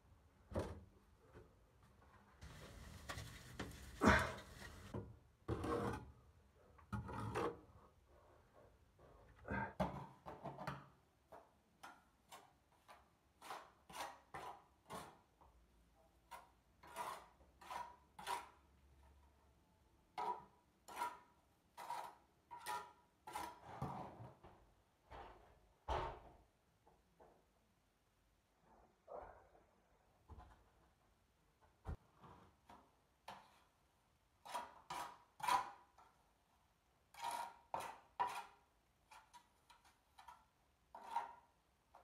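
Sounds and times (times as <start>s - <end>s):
trowel scraping mortar in wheelbarrow: 2.4s - 4.9s, 13.4s - 15.2s, 16.3s - 18.6s, 20.2s - 24.1s, 34.4s - 35.9s, 37.1s - 41.5s.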